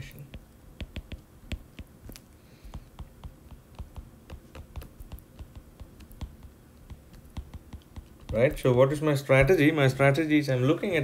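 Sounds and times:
stylus tapping on glass screen: 0.2s - 8.6s.

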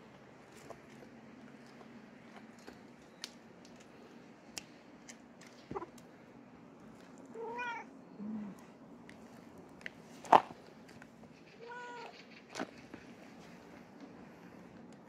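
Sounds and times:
cat meowing: 7.4s - 7.9s, 11.6s - 12.1s.

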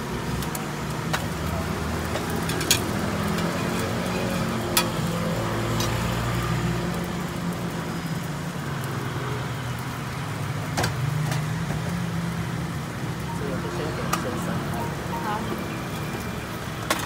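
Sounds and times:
motor traffic hum: 0.0s - 17.0s.

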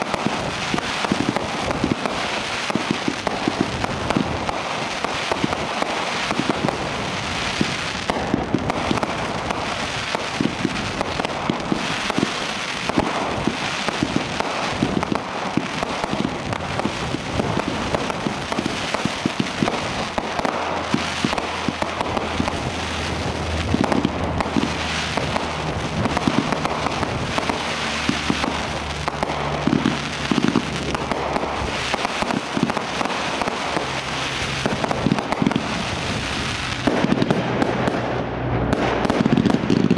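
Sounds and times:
fireworks shots and crackling: 0.0s - 39.9s
sharp fireworks bangs: 0.0s - 39.9s.

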